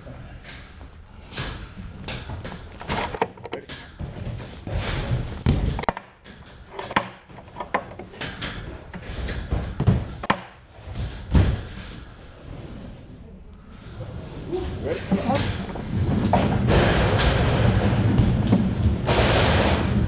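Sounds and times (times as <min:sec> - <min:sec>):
footsteps on metal grating: 0:00.0 - 0:12.3
knocks and thumps on bobsled: 0:01.8 - 0:12.2, 0:15.0 - 0:20.0.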